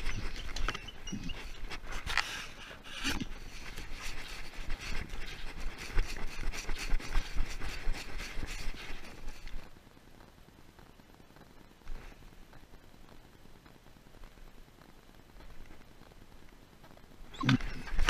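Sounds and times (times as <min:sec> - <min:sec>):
rubbing and scraping on camera: 0:00.0 - 0:09.7, 0:17.4 - 0:18.0.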